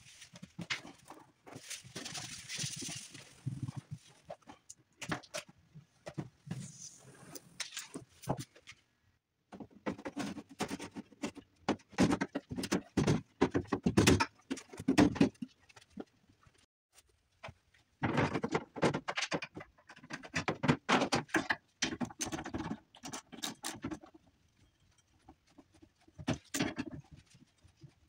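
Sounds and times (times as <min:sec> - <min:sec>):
hands rustling and tapping parts: 0:07.6 - 0:28.0
clatter of parts: 0:18.0 - 0:28.0.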